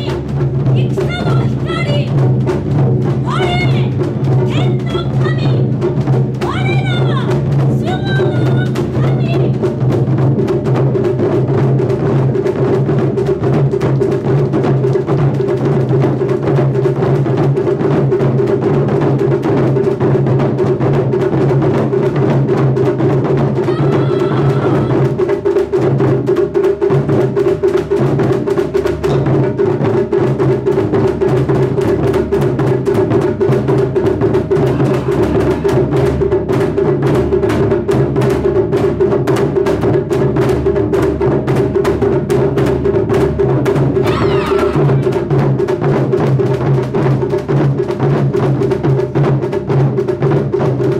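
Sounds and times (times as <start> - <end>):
taiko drums playing: 0.0 - 50.9.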